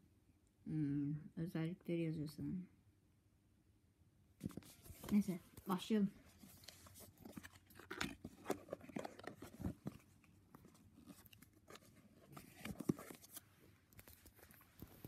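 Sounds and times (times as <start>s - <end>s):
cardboard box rustling and scraping: 6.3s - 13.5s.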